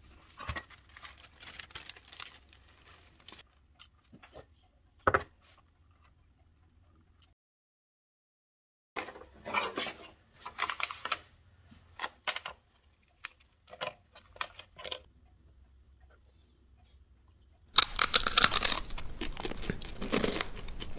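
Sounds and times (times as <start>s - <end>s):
cracker bitten with crunch: 17.8s - 20.9s
cracker snapping: 17.8s - 20.9s.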